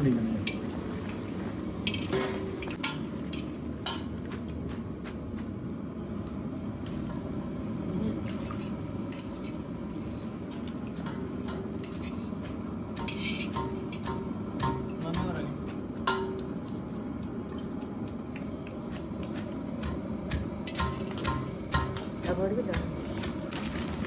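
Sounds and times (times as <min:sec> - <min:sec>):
utensils clinking on metal pots: 0:01.8 - 0:04.2, 0:13.0 - 0:16.6, 0:20.6 - 0:24.0.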